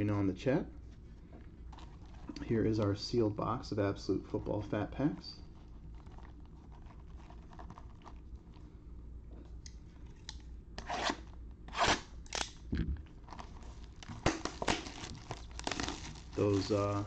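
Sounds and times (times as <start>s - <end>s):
plastic shrink wrap crackling: 5.0s - 8.6s, 12.3s - 17.0s.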